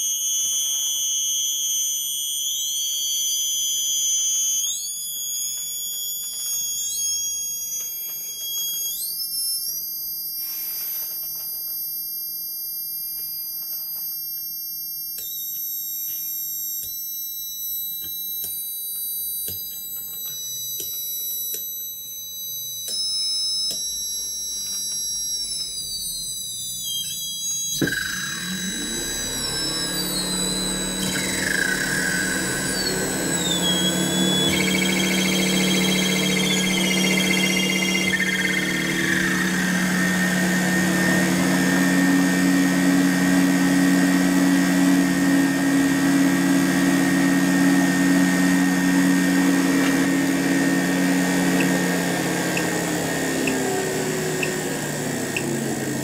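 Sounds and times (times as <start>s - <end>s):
high-pitched motor whines: 0.0s - 56.0s
falling whistles: 2.1s - 11.2s, 22.2s - 44.4s
low hum: 27.8s - 52.6s.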